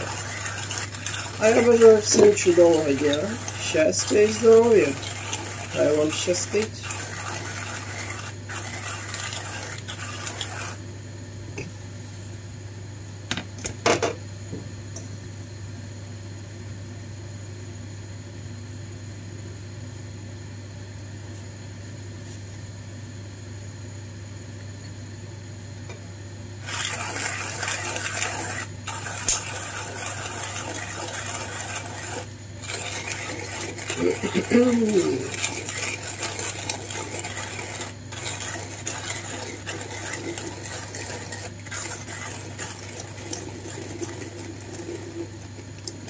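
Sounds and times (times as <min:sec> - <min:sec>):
coffee grinder grinding beans: 0:00.0 - 0:10.8, 0:26.6 - 0:46.0
steady low hum: 0:00.0 - 0:46.0.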